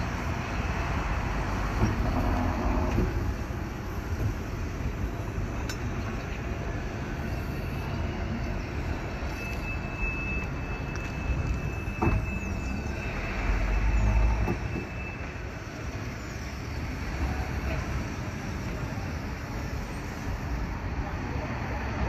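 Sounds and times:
tram rumbling on rails: 0.0s - 22.0s
high steady squeal: 7.0s - 16.9s.

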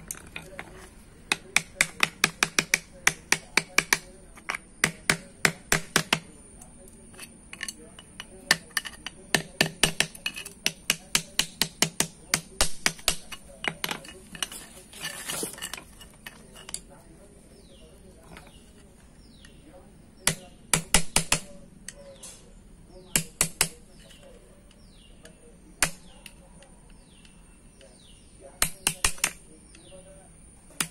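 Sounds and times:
hammer tapping metal punch: 1.3s - 6.3s, 7.5s - 14.2s, 28.6s - 29.4s
scraping rustle: 13.3s - 17.2s.

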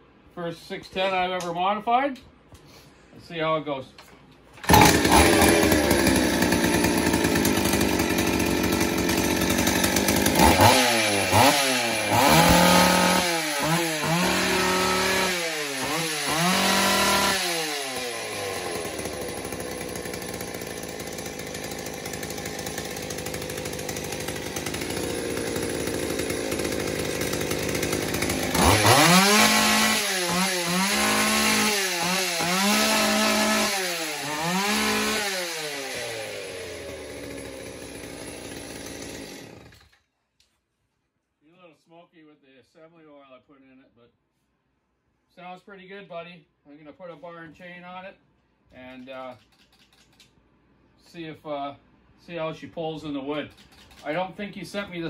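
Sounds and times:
chainsaw engine revving: 4.6s - 40.0s, 53.5s - 54.2s.

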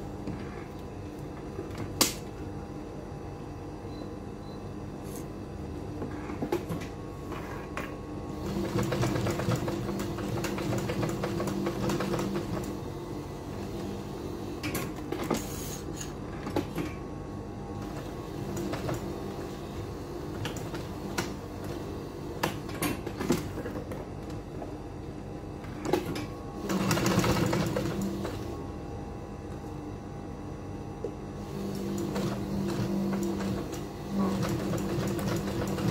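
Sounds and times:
sewing machine stitching: 26.0s - 28.4s, 31.6s - 35.9s.

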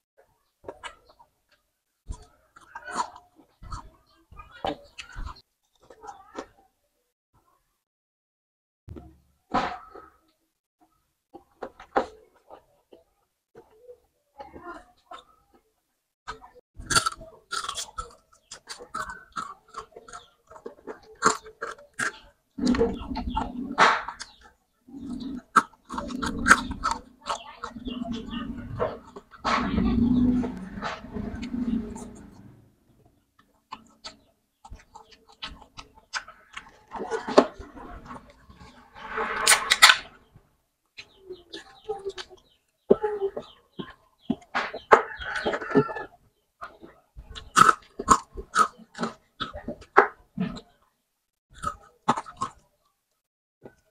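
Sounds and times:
crunchy chewing: 16.3s - 32.5s, 33.4s - 38.8s, 43.7s - 50.8s, 51.5s - 52.7s.

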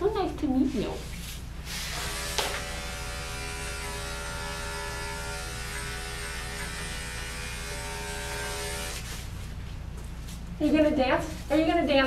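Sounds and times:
electric clipper buzzing: 1.6s - 9.2s.

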